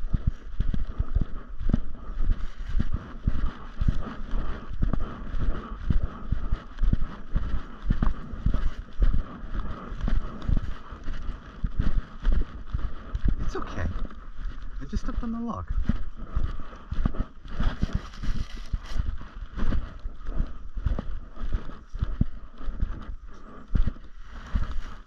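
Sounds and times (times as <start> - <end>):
footsteps on trail: 0.0 - 25.0.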